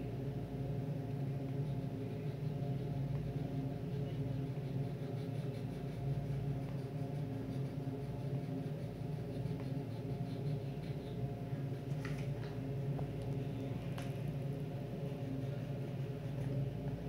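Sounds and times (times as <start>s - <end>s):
crayon scratching on paper: 2.2s - 12.0s.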